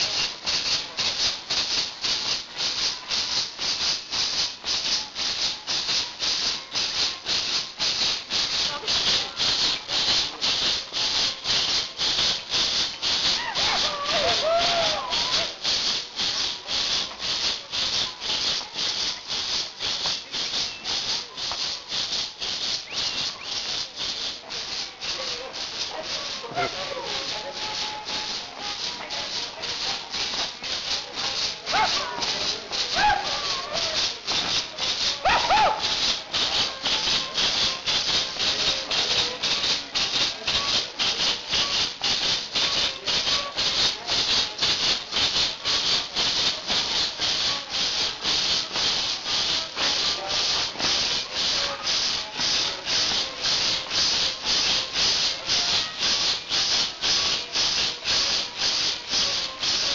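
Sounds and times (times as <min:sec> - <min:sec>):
maracas shaken in steady beat: 0:00.0 - 0:59.9
people shouting: 0:13.3 - 0:15.5, 0:31.7 - 0:32.3, 0:32.9 - 0:34.0, 0:35.2 - 0:36.0.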